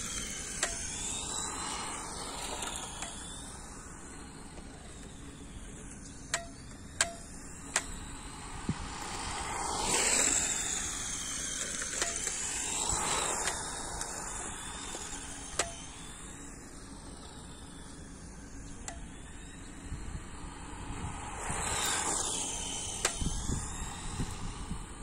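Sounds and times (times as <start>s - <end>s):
plastic clicks of transmitter: 6.3s - 8.0s.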